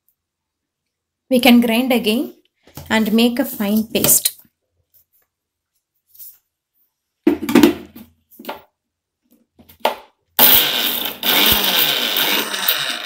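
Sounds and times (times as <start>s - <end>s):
mixer grinder motor running: 10.4s - 13.0s.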